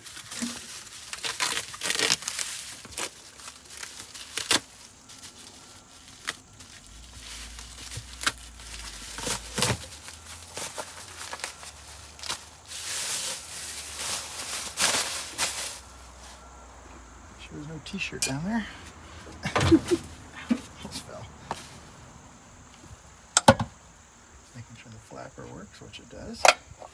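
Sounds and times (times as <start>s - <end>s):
duct tape tearing: 0.0s - 5.4s, 6.1s - 15.8s
plastic bag crinkling: 0.0s - 16.5s.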